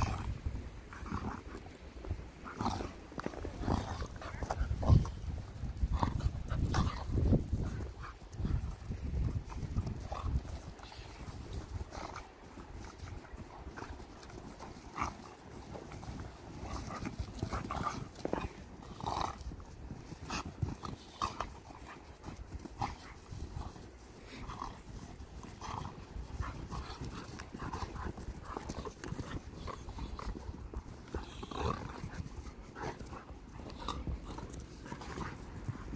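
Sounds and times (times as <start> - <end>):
dogs play-wrestling noises: 0.0 - 35.9.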